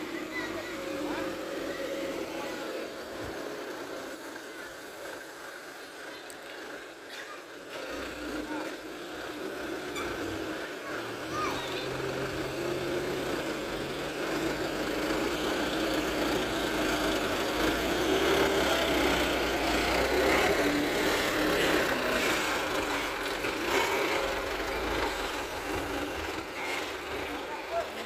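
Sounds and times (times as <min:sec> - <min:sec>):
diesel truck driving past: 0:07.7 - 0:28.0.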